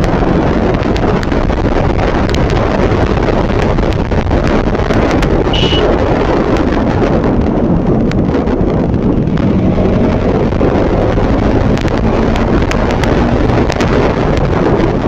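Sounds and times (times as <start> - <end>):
motorcycle engine: 0.0 - 15.0
road noise: 0.0 - 15.0
wind rushing over microphone: 0.0 - 15.0
high beep: 5.5 - 5.9.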